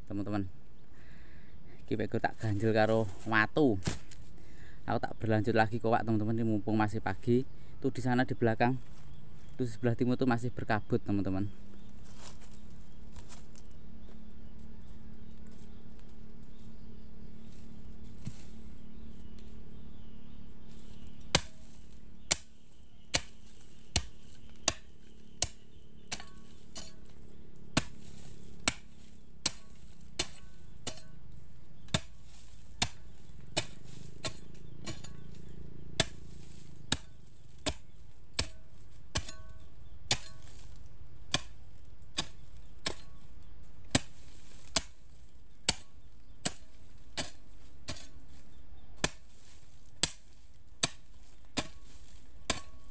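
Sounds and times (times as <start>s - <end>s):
hoe chopping into dry soil: 2.4s - 4.3s, 11.5s - 14.2s, 17.4s - 19.9s, 20.6s - 52.9s.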